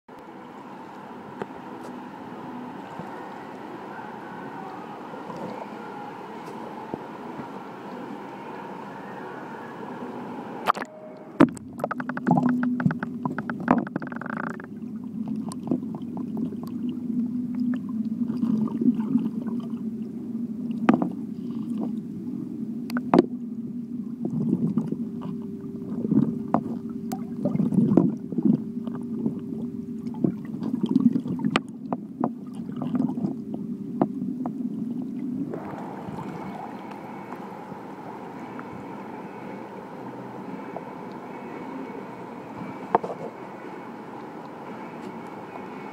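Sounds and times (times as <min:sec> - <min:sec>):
low steady hum: 0:00.1 - 0:45.9
muffled underwater gurgling: 0:00.4 - 0:44.8
underwater clicks and knocks: 0:10.7 - 0:14.8, 0:20.8 - 0:21.2, 0:22.9 - 0:23.3.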